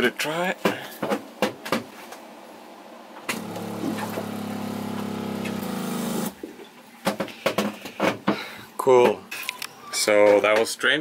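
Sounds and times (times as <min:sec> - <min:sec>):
electric water pump humming: 0:03.3 - 0:06.4.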